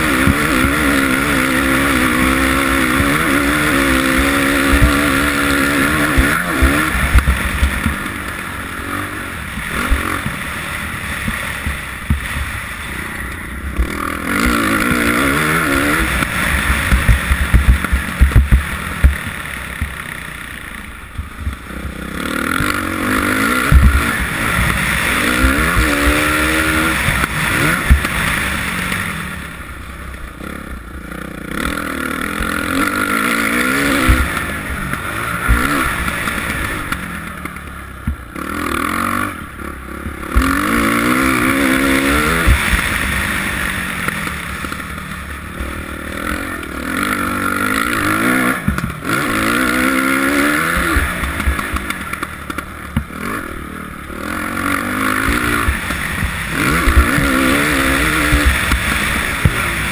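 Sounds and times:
motorcycle engine revving: 0:00.0 - 0:59.9
sharp low thumps: 0:15.9 - 0:20.0, 0:23.6 - 0:24.8.

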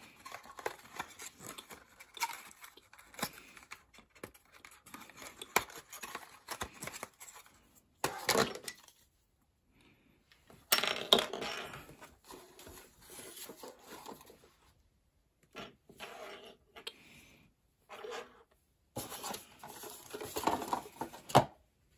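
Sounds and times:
cardboard rustling: 0:00.0 - 0:08.4, 0:11.8 - 0:14.6, 0:19.0 - 0:21.5.

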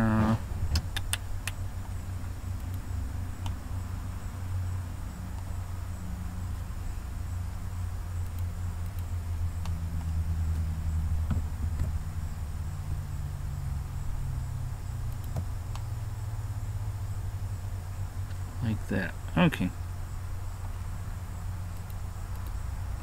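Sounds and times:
steady low hum: 0:00.0 - 0:23.0
computer mouse clicks: 0:00.8 - 0:01.6, 0:08.2 - 0:10.1, 0:15.1 - 0:15.9, 0:21.7 - 0:22.6.

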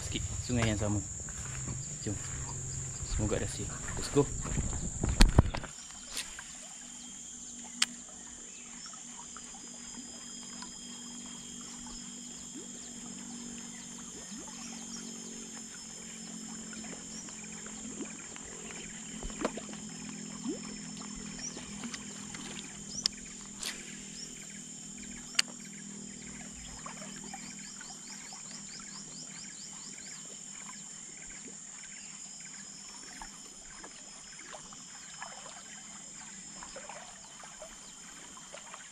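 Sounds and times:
insects droning: 0:00.0 - 0:38.9.

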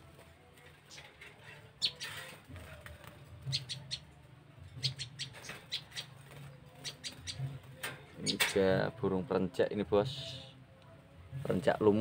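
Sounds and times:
songbirds chirping sharply: 0:00.7 - 0:09.0.

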